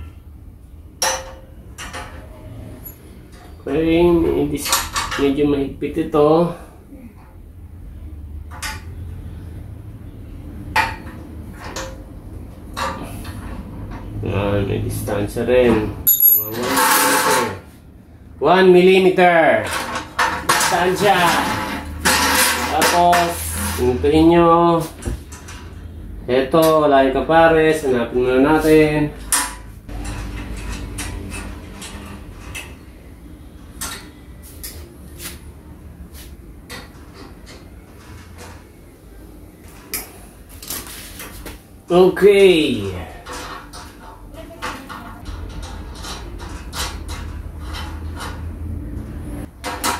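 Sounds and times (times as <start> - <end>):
sharp metallic clinks: 16.0 - 16.8.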